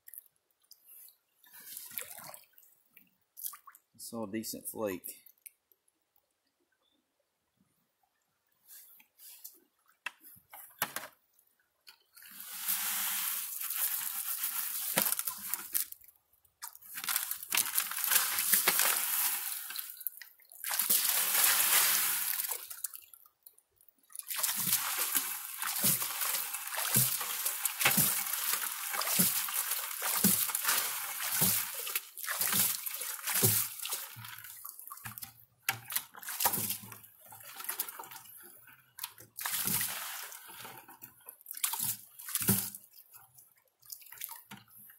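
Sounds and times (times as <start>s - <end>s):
water pouring and sloshing in bucket: 0.8s - 3.9s, 12.2s - 23.4s, 24.0s - 44.9s.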